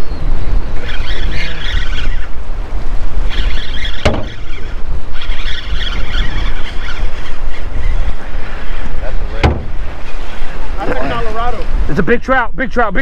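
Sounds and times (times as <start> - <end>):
wind rumble on microphone: 0.0 - 13.0
fishing reel buzzing: 0.4 - 10.5.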